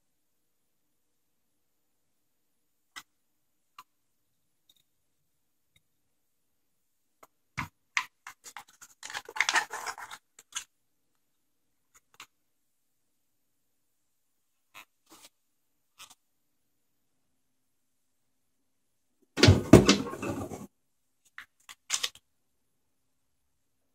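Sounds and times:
foil pan crinkling and knocking: 8.3s - 10.7s, 19.4s - 20.7s.

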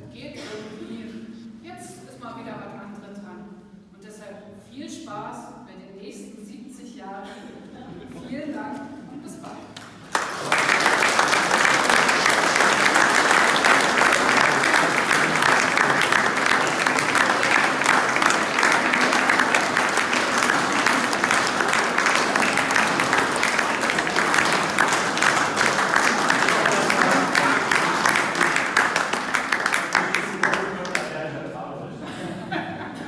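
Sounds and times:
crowd applauding: 9.8s - 31.3s.

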